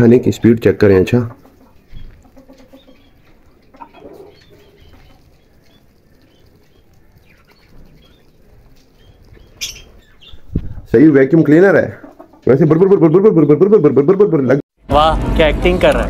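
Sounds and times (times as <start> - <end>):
small birds chirping: 0.0 - 14.2
duck bill dabbling at grain: 1.3 - 10.4.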